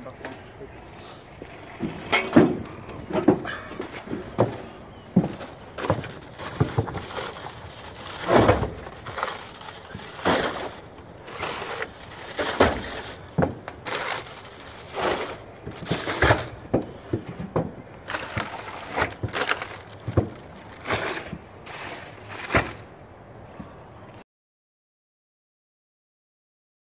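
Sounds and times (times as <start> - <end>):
cases thudding on truck bed: 1.8 - 22.9
plastic crinkling: 5.2 - 17.0, 18.0 - 22.9.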